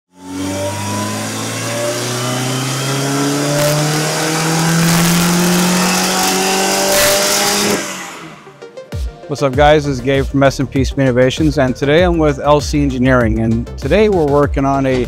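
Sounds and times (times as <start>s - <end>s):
engine revving at full throttle: 0.1s - 8.8s.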